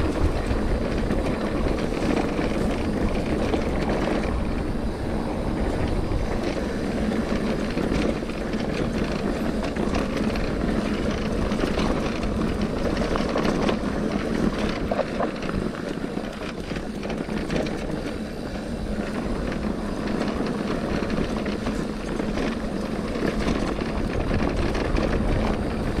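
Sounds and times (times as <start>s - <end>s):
bike rattling and knocking: 0.0s - 26.0s
tyres on loose dirt: 0.0s - 26.0s
wind rumble on microphone: 0.0s - 26.0s.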